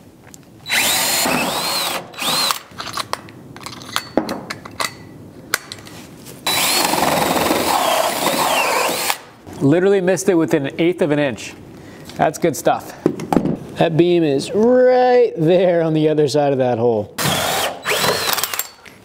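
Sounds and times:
cordless drill cutting wood: 0.7s - 2.7s, 6.5s - 9.2s, 17.2s - 18.6s.

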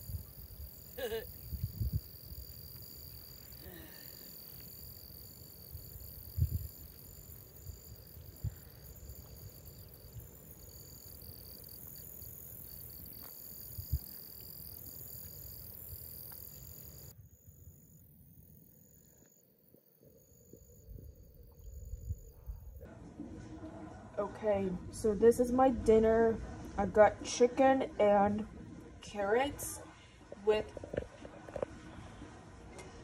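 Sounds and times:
insect chorus trilling: 0.0s - 22.8s.

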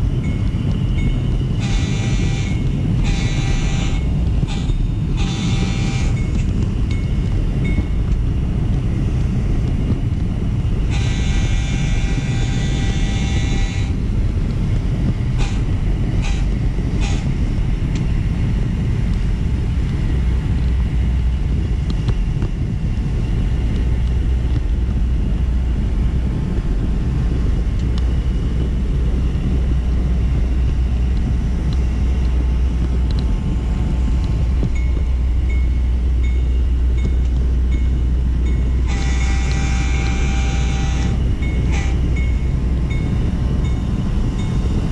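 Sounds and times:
model train rumbling on track: 0.0s - 44.9s
train horn blast: 1.5s - 6.5s, 10.8s - 14.2s, 15.4s - 17.4s, 38.6s - 42.6s.

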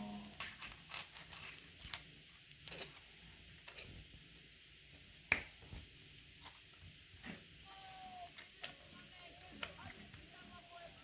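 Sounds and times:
plastic bricks clicking: 0.4s - 3.0s.

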